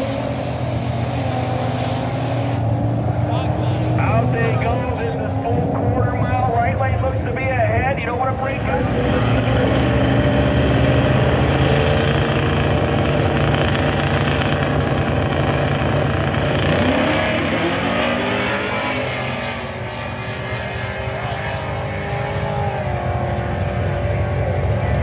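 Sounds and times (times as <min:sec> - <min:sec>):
cars accelerating away: 0:00.0 - 0:25.0
drag car engines revving: 0:00.0 - 0:25.0.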